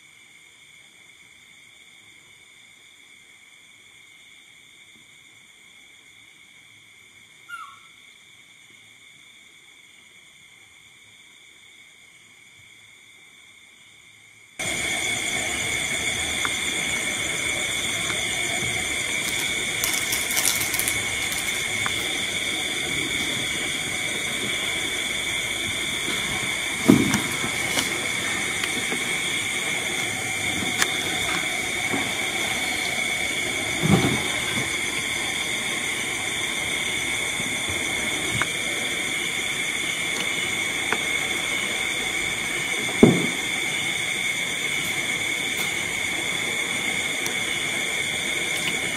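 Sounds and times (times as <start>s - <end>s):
steady hiss: 0.0s - 48.9s
high-pitched whine: 14.6s - 48.7s.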